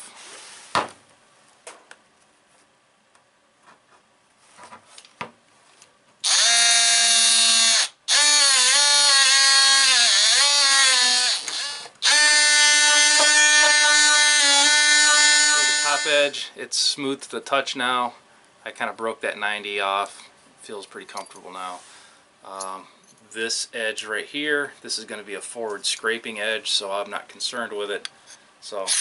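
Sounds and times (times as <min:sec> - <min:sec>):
power sander whine: 0:06.3 - 0:16.3.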